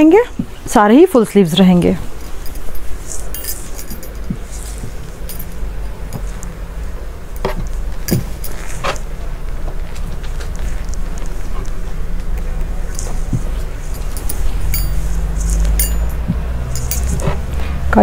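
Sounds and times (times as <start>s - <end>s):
low background hum: 0.0s - 18.0s
cloth rustling: 2.0s - 6.4s
light clicks and clinks: 2.1s - 6.5s, 7.4s - 8.8s, 12.9s - 17.4s.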